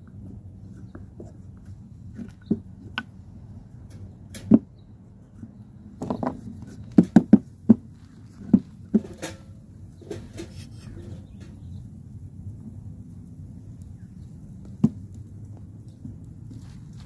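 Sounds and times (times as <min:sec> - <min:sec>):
wooden blocks knocking on wood: 0:06.0 - 0:09.1.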